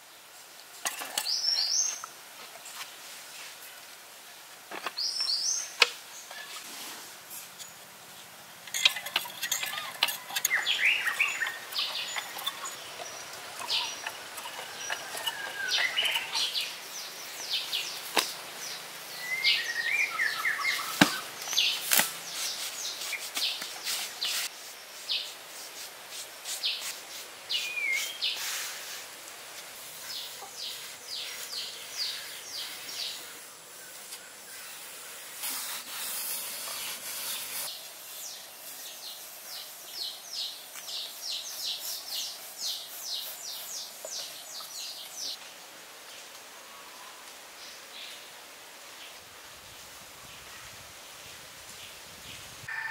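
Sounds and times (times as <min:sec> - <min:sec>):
birds chirping and calling: 0:08.7 - 0:24.5.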